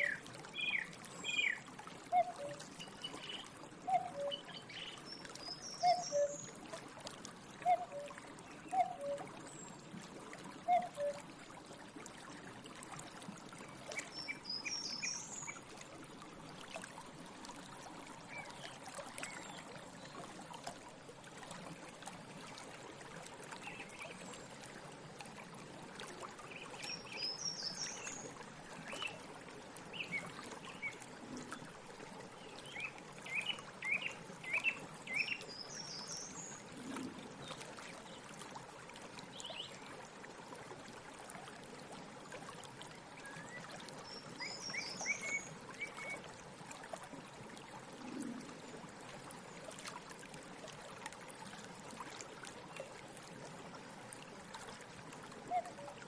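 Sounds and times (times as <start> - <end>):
song thrush singing: 0.0 - 6.5, 14.0 - 15.6, 32.7 - 36.4.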